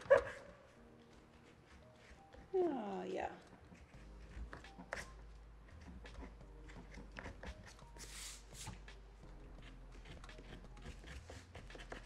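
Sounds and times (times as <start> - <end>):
pastel scratching on paper: 1.2 - 2.5, 3.5 - 12.0
rubbing rustle on paper: 3.4 - 9.0, 9.6 - 12.0.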